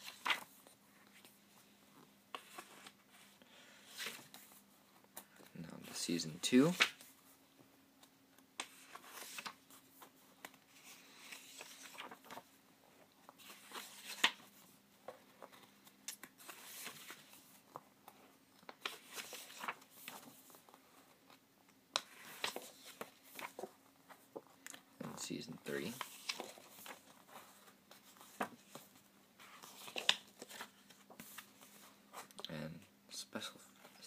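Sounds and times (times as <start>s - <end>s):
glossy pages turning: 0.0s - 1.3s, 8.6s - 12.5s, 13.2s - 14.5s, 15.4s - 17.8s, 18.6s - 21.4s, 22.0s - 24.8s, 25.8s - 32.4s.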